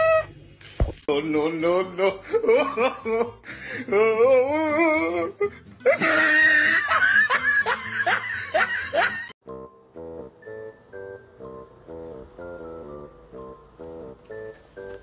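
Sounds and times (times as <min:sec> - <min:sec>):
high-pitched laughter: 0:05.2 - 0:09.4.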